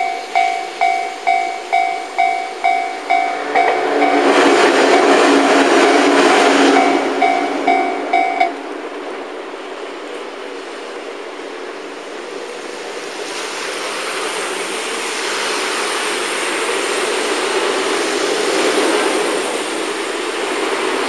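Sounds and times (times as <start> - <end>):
car tyres hissing on wet road: 8.6 - 21.0.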